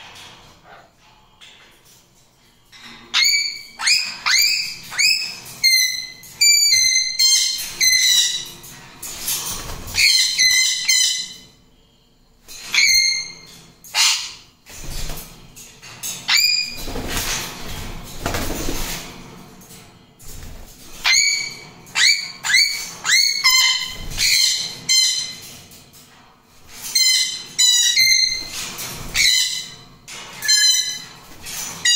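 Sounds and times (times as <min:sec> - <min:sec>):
parrots calling shrilly: 0:12.7 - 0:14.4
wings flapping: 0:16.7 - 0:19.3.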